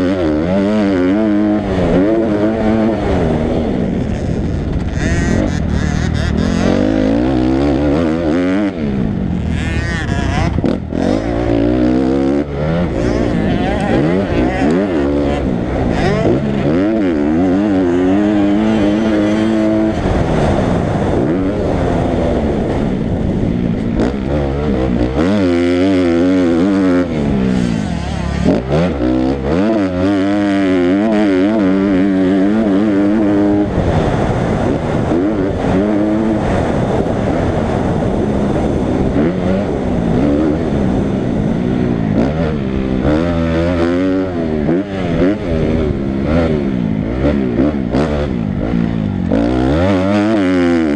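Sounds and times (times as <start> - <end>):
dirt bike engine revving: 0.0 - 50.9.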